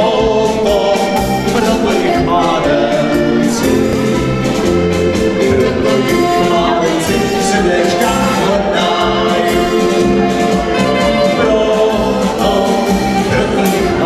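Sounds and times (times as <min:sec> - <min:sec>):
live band folk dance music: 0:00.0 - 0:14.0
person singing: 0:00.0 - 0:14.0.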